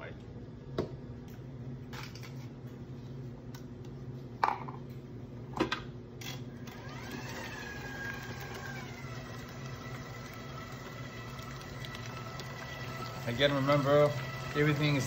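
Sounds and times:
stand mixer motor whine: 0:06.5 - 0:15.0.

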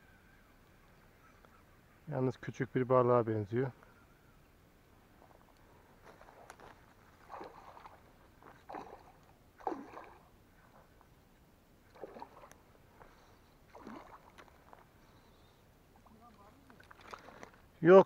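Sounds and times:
fish splashing in water: 0:07.2 - 0:10.3, 0:11.9 - 0:12.6, 0:13.7 - 0:14.9, 0:16.8 - 0:17.6.

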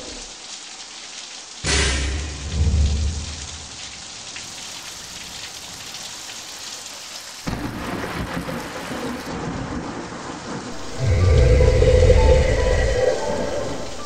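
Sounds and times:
rain falling: 0:00.0 - 0:14.0
thunder rumbling: 0:01.8 - 0:03.8, 0:07.5 - 0:14.0.

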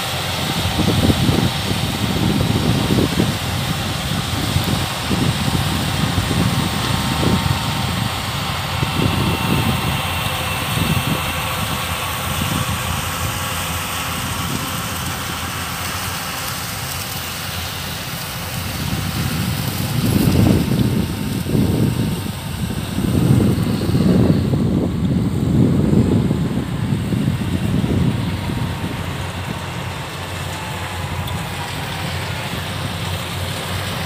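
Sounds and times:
wind buffeting microphone: 0:00.0 - 0:16.5, 0:17.8 - 0:34.0
combine harvester running: 0:00.0 - 0:34.0.

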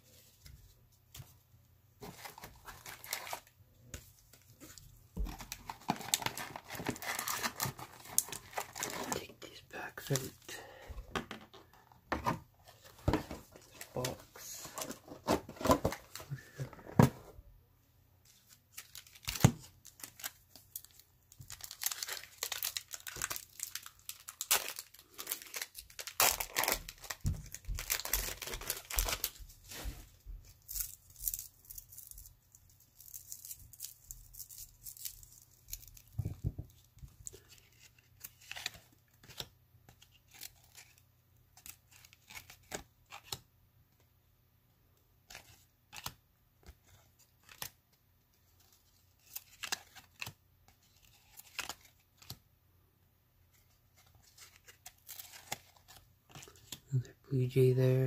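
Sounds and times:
wrapper tearing and crinkling: 0:02.2 - 0:03.5, 0:05.3 - 0:09.2, 0:18.7 - 0:29.4, 0:48.9 - 0:52.4, 0:53.9 - 0:56.8.

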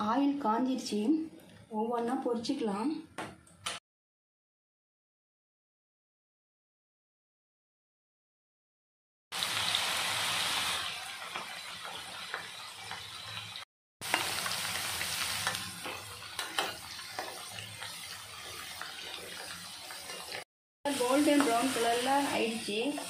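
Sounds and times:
potatoes deep-frying in oil: 0:09.3 - 0:23.0.

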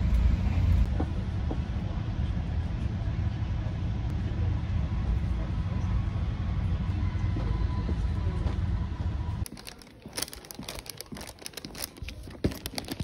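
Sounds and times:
vehicle rumble: 0:00.0 - 0:13.0
light clicks and crinkling: 0:09.4 - 0:13.0.

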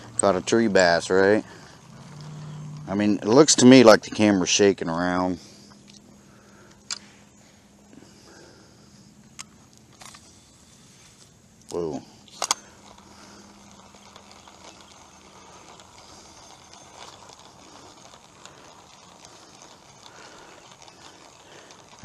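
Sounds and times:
fishing reel clicking: 0:00.0 - 0:06.0, 0:11.6 - 0:22.0.

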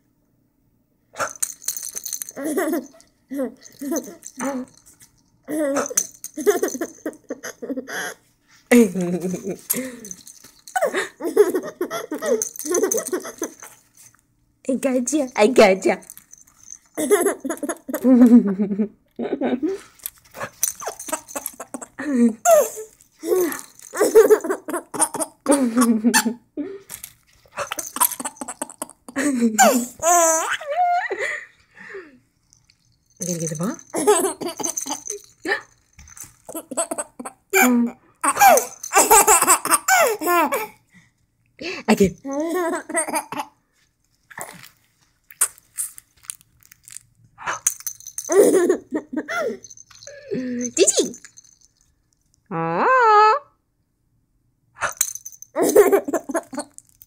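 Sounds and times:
baby giggling: 0:05.5 - 0:08.2, 0:10.8 - 0:13.7, 0:17.0 - 0:18.4, 0:20.8 - 0:26.4, 0:27.6 - 0:31.0, 0:33.9 - 0:35.2, 0:36.5 - 0:40.8, 0:42.2 - 0:43.5, 0:55.6 - 0:56.7.

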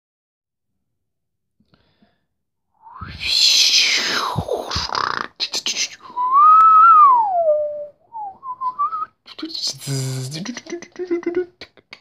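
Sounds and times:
person whistling: 0:02.8 - 0:03.8, 0:06.0 - 0:09.2
mouth clicks: 0:02.9 - 0:06.8.

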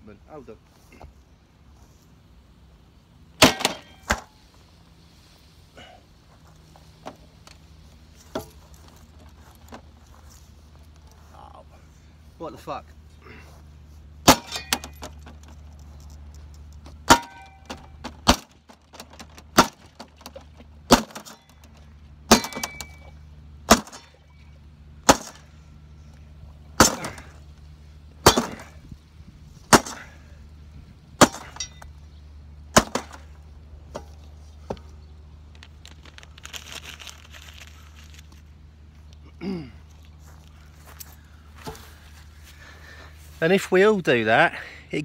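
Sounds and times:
spade smashing glass: 0:03.4 - 0:04.2, 0:14.2 - 0:15.2, 0:17.0 - 0:18.4, 0:22.3 - 0:23.1, 0:26.8 - 0:27.3, 0:28.2 - 0:28.7.

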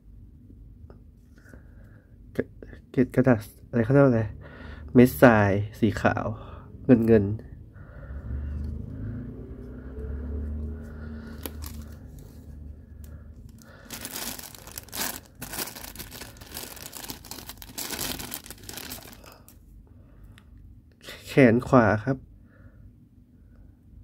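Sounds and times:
plastic bag crinkling: 0:11.2 - 0:12.4, 0:13.0 - 0:19.6.

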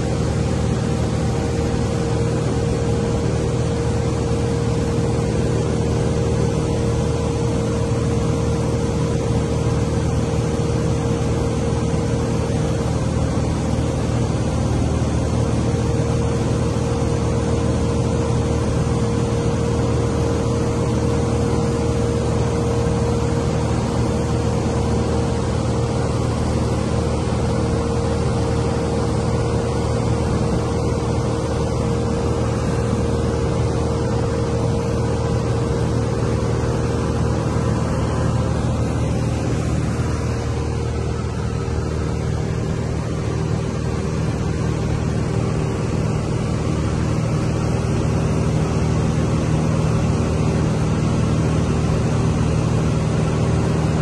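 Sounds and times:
aircraft engine droning: 0:00.0 - 0:54.0
rushing air: 0:32.4 - 0:48.6.

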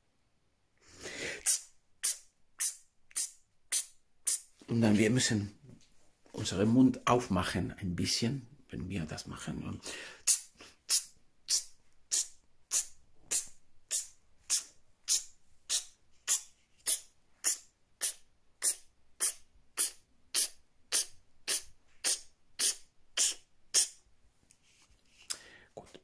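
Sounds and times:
beatboxed hi-hat hiss: 0:01.4 - 0:04.6, 0:10.2 - 0:24.0.

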